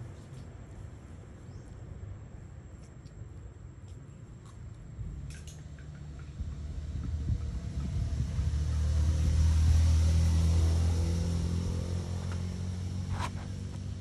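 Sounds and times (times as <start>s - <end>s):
vehicle engine rumble passing: 5.1s - 14.0s.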